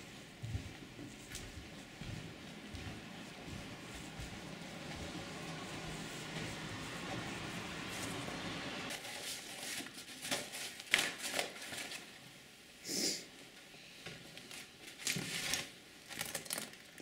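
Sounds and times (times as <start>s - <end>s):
footsteps on paper: 0.0s - 8.2s
background hiss: 12.4s - 14.0s.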